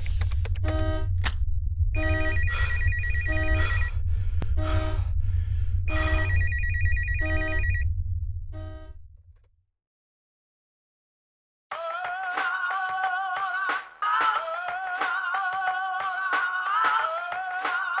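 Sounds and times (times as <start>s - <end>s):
low rumble: 0.0s - 9.6s
short repeating tones: 2.0s - 3.9s, 5.9s - 7.8s.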